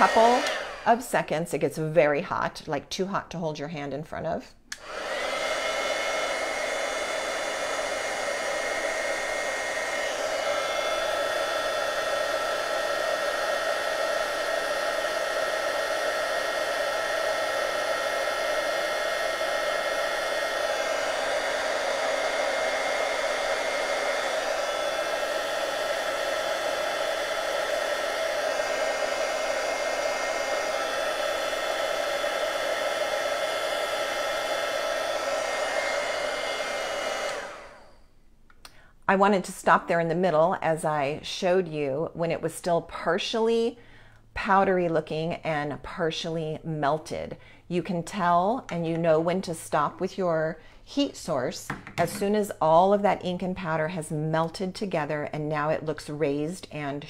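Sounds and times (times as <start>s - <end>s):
heat tool blowing hot air: 0.0s - 1.7s, 4.7s - 38.1s.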